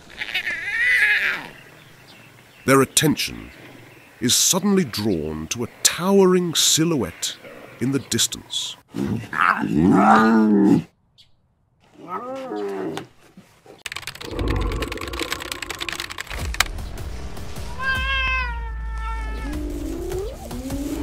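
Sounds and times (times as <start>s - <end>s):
lion cubs calling: 0.0s - 1.7s, 11.9s - 13.1s, 17.8s - 21.0s.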